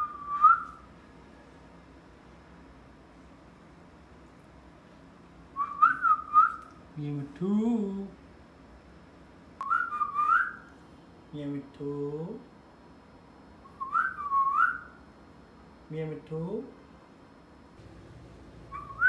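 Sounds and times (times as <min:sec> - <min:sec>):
parakeet whistling: 0:18.6 - 0:19.0.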